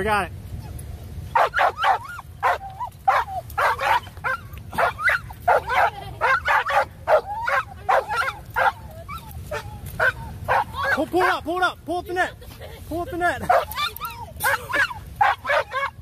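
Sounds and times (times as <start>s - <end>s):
dog barking: 1.3s - 8.8s, 9.5s - 11.0s, 13.5s - 13.8s, 14.4s - 16.0s.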